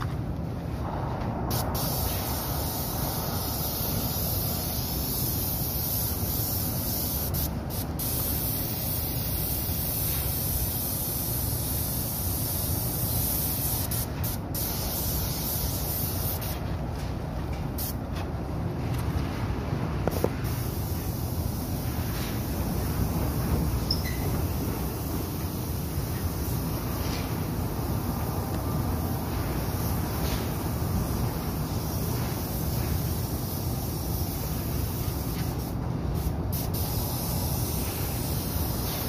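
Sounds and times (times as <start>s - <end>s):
low rumble: 0.3s - 4.4s
paint spray gun hissing: 1.5s - 16.6s, 20.1s - 28.0s, 29.1s - 39.0s.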